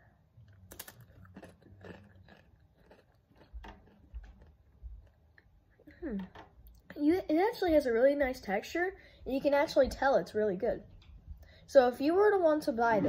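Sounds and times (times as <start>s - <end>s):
chewing crunchy chip: 0.4s - 5.5s.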